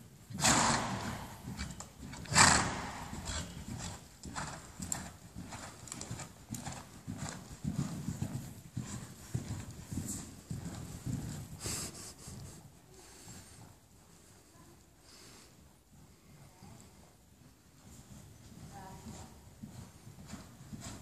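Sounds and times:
hoofbeats on sand: 0:00.3 - 0:12.0, 0:17.9 - 0:21.0.

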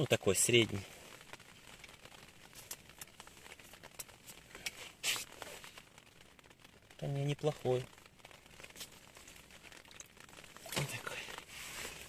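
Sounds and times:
rain ticking on tent fabric: 0:00.0 - 0:12.0
jacket sleeve rustle: 0:03.5 - 0:05.8, 0:10.6 - 0:12.0.

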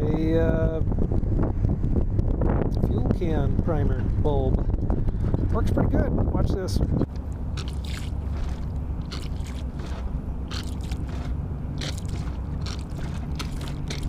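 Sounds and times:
steady low hum: 0:00.0 - 0:14.0
rubber bulb pump squeezing: 0:07.6 - 0:14.0.

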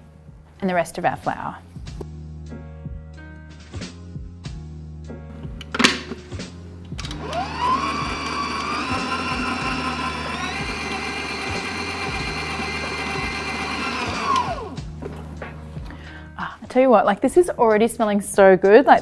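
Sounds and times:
stand mixer motor whining: 0:07.1 - 0:14.8.

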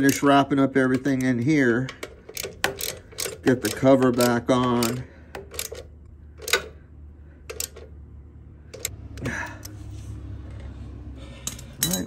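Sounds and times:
ratchet wrench clicking: 0:00.0 - 0:06.8, 0:07.4 - 0:07.9, 0:08.7 - 0:09.0.

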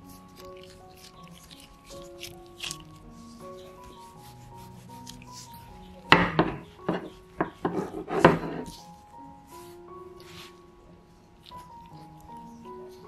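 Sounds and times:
soft background music: 0:00.0 - 0:13.0
rolling pin rolling and knocking: 0:06.1 - 0:08.7.

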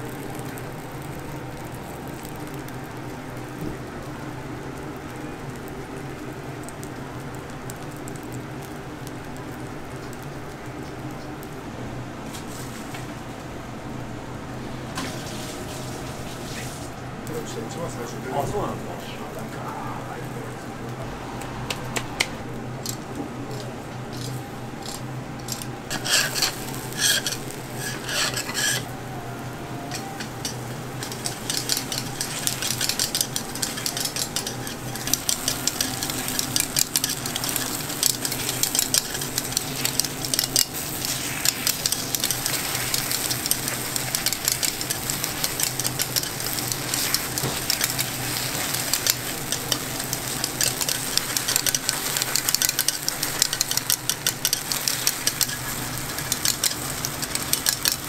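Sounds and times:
batter sizzling: 0:00.0 - 0:58.0
steady low hum: 0:00.0 - 0:58.0
metal picks clicking and scraping: 0:22.8 - 0:28.9, 0:29.9 - 0:58.0.

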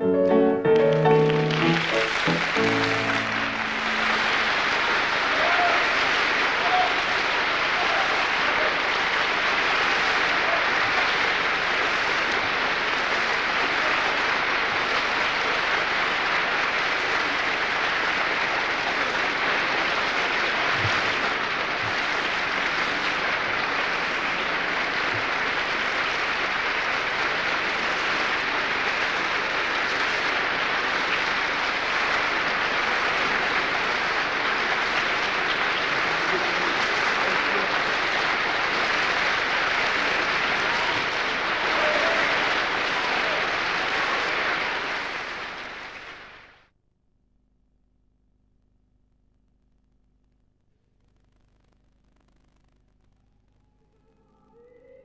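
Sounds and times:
audience applauding: 0:00.0 - 0:46.7.

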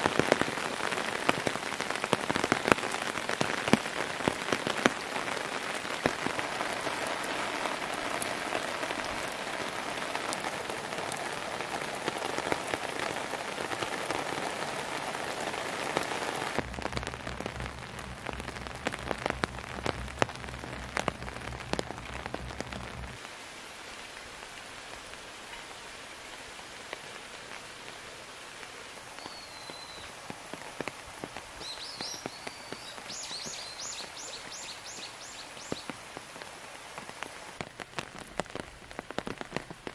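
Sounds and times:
rain pattering on wooden deck: 0:00.0 - 0:39.9
low steady rumble: 0:16.6 - 0:23.2
small bird chirping: 0:31.6 - 0:35.9.

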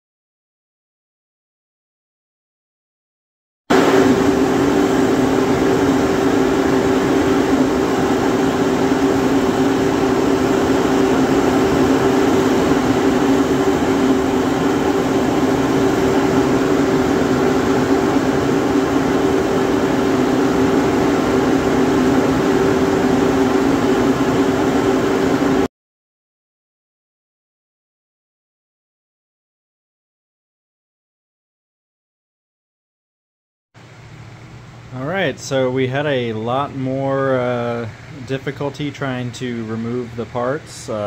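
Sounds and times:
motor or fan humming: 0:03.7 - 0:25.7, 0:33.8 - 0:41.0.

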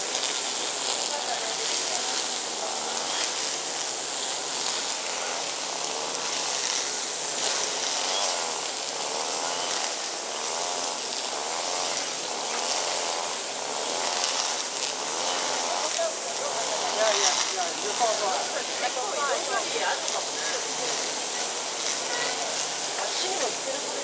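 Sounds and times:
high-pitched outdoor hiss: 0:00.0 - 0:24.0
distant voices murmuring: 0:00.6 - 0:24.0.

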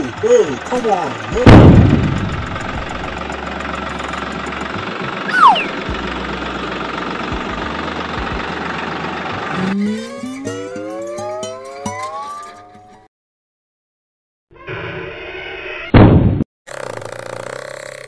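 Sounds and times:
short falling whistle: 0:05.3 - 0:05.9
rising siren-like tone: 0:05.3 - 0:06.0, 0:09.5 - 0:13.0.

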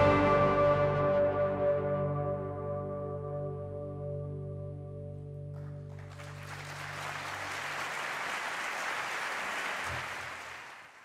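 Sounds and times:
amplified string chord ringing: 0:00.0 - 0:05.6
audience applause: 0:05.8 - 0:11.0.

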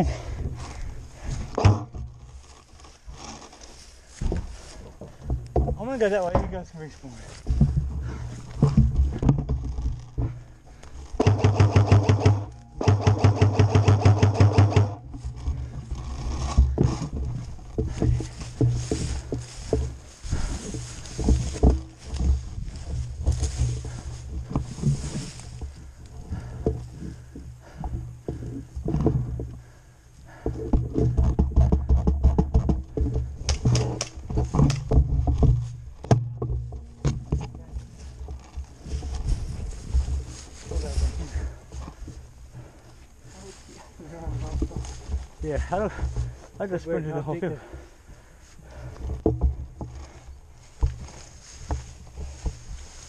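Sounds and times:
carried gear jolting: 0:00.0 - 0:11.3, 0:15.0 - 0:31.9, 0:32.6 - 0:53.0
footsteps through long grass: 0:02.1 - 0:11.2, 0:15.0 - 0:30.2, 0:33.2 - 0:53.0
scattered knocks: 0:11.1 - 0:20.0, 0:30.4 - 0:37.6.

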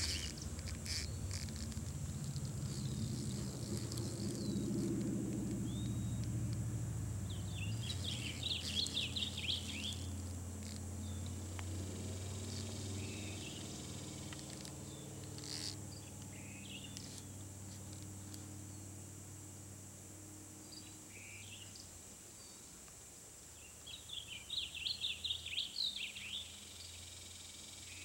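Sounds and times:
birds chirping: 0:00.0 - 0:06.6, 0:07.2 - 0:17.4
low engine hum: 0:00.0 - 0:21.6
insect drone: 0:00.0 - 0:28.0.

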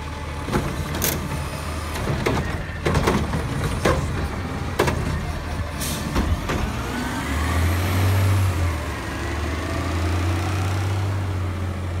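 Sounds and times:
truck diesel engine rumbling: 0:00.0 - 0:12.0.

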